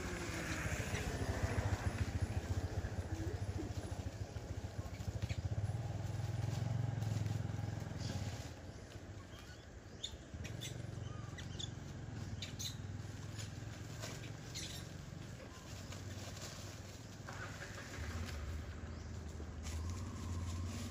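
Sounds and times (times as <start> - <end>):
engine humming: 0.0 - 20.9
high squeaks and ticks: 9.2 - 15.0.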